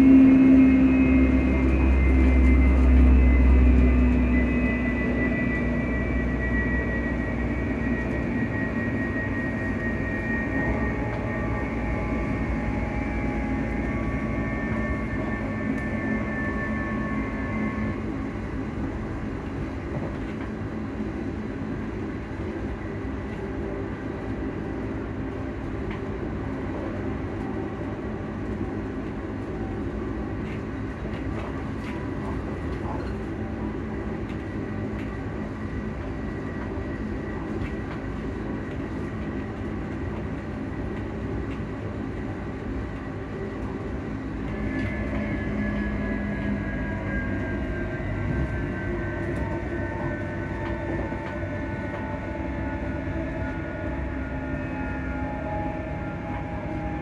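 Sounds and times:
high whining tones falling: 0.0 - 19.4
cooling fans humming: 0.0 - 57.0
train wheels rumbling on track: 0.0 - 57.0.

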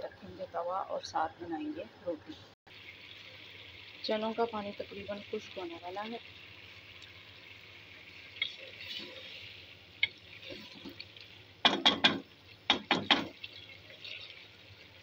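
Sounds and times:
pot simmering with a hiss: 1.7 - 15.0
spoon knocking against pot: 11.6 - 13.4.

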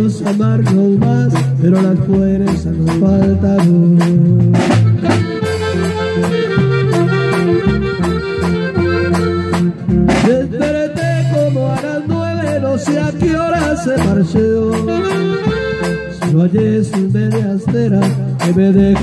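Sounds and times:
accordion melody: 0.0 - 19.0
drum beat: 0.0 - 19.0
electric bass line: 0.0 - 19.0.

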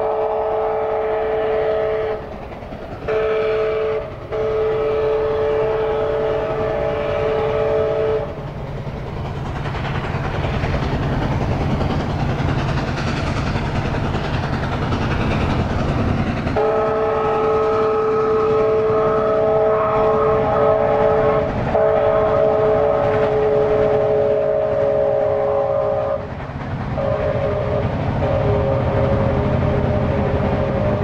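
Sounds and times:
steam locomotive chime whistle: 0.0 - 2.3, 3.1 - 8.4, 16.6 - 26.3, 27.0 - 31.0
steam locomotive rumble: 0.0 - 31.0.

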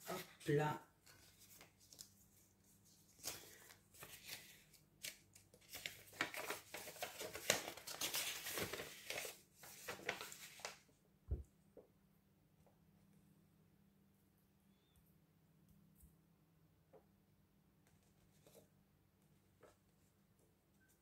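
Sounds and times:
paper rustling and crinkling: 0.0 - 10.9.

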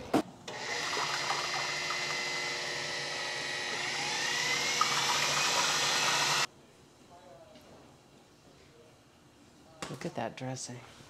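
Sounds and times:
food processor motor whining: 0.5 - 6.5.

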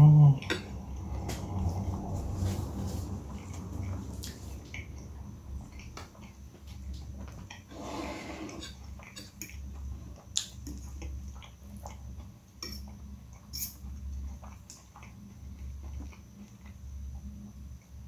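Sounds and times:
chewing: 2.7 - 7.8, 8.4 - 17.3
fork scraping glass plate: 7.7 - 9.4.

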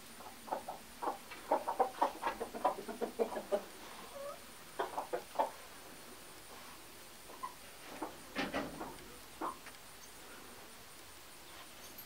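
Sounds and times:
chickens clucking: 0.2 - 5.7, 7.2 - 9.8.

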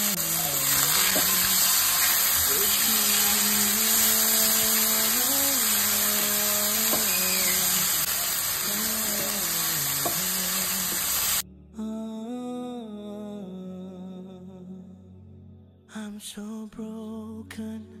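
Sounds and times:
chicken sizzling in oil: 0.0 - 11.4
spatula turning food in pan: 0.0 - 11.4
background song: 0.0 - 18.0.

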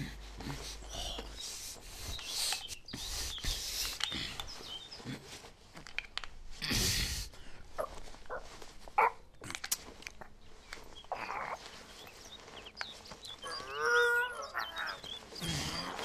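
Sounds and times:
leather sleeves creaking: 7.3 - 16.0.

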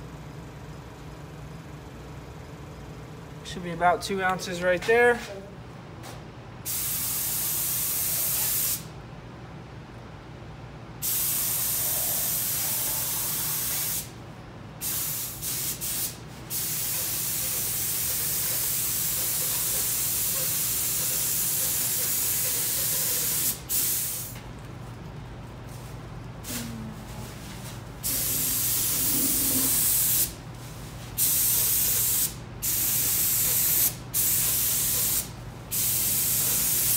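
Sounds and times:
steady low hum: 0.0 - 6.7, 8.8 - 36.9
paint spray gun hissing: 6.7 - 8.9, 11.0 - 14.1, 14.8 - 24.4, 28.0 - 30.3, 31.2 - 36.9.

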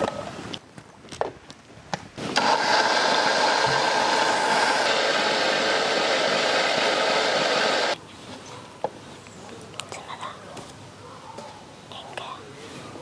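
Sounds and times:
mixer grinder motor blending liquid: 2.4 - 8.0.

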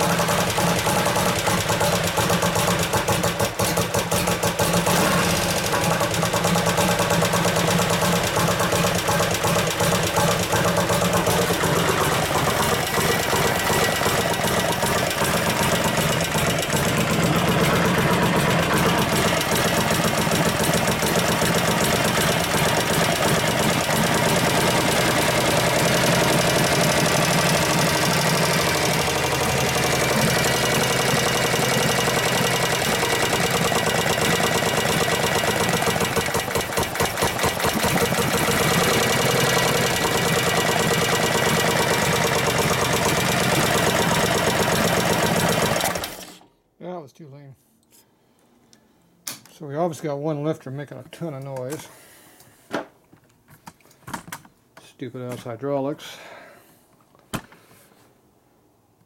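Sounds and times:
motorcycle engine idling: 0.0 - 46.1
fast valve train ticking: 0.0 - 46.2.

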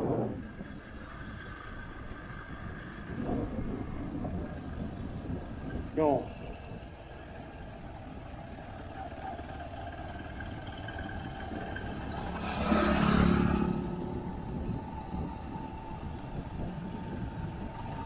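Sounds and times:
road and engine noise: 0.0 - 18.0
vehicle passing by: 9.4 - 18.0.

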